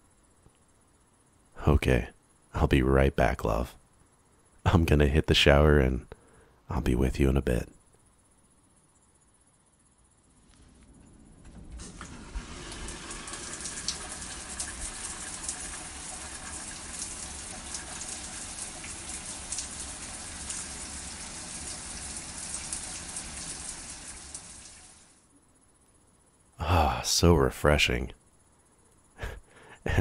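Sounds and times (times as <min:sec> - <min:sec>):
shower water spraying: 0:11.8 - 0:25.2.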